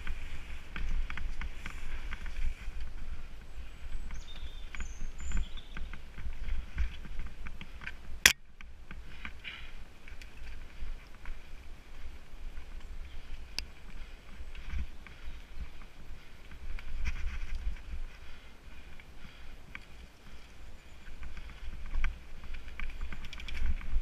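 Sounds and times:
bike tyres on dirt: 0.0 - 24.0
wind rumble on microphone: 0.0 - 24.0
bike rattling clicks: 21.4 - 24.0.

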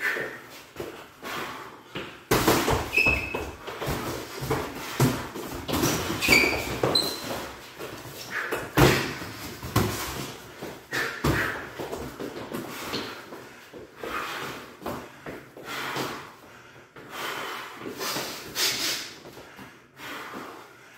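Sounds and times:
feet thumping on hardwood floor: 0.0 - 16.2
boxing gloves smacking: 2.0 - 13.2
sneakers squeaking: 2.0 - 13.2.

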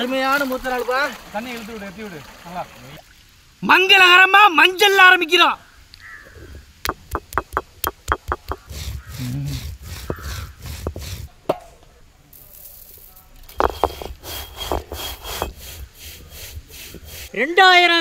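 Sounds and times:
stone roller knocking on slab: 6.9 - 8.7, 13.5 - 15.8
stone grinding scrapes: 6.9 - 11.4, 13.5 - 17.3.

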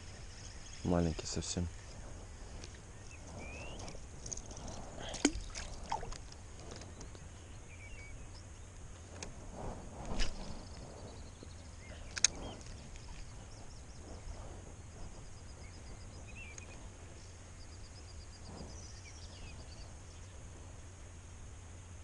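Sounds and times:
small birds chirping: 0.0 - 9.1, 10.1 - 20.5
low steady hum: 0.0 - 22.0.

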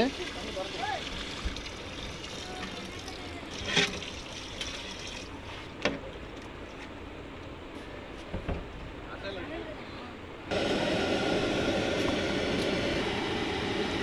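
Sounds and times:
water pouring into a pot: 0.0 - 5.4.

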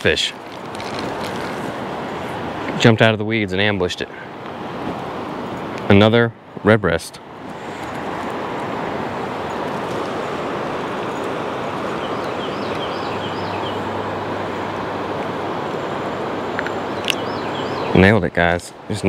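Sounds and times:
river water flowing: 0.0 - 19.0
bird chirping: 9.3 - 14.2, 16.6 - 18.2.

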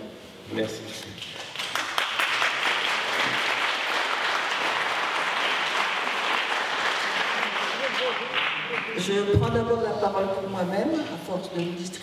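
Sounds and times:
audience applauding: 1.4 - 9.1.

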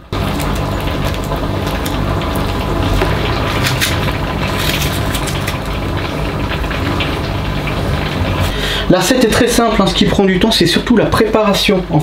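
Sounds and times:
machine hum with low drone: 0.0 - 9.4
knife cutting apple: 2.9 - 5.6.

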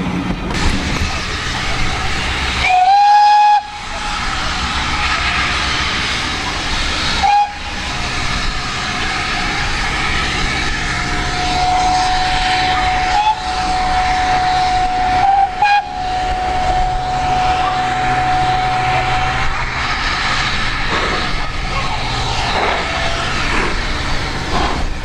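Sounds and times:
train rushing noise: 0.0 - 25.0
distant steam whistle: 2.5 - 4.4, 7.0 - 19.5.

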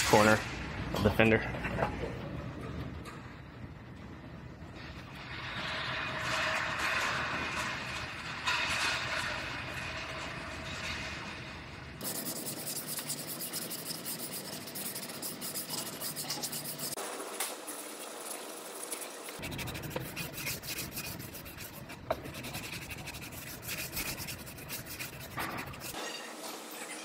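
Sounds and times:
sanding block rasping on filler: 12.0 - 26.0.

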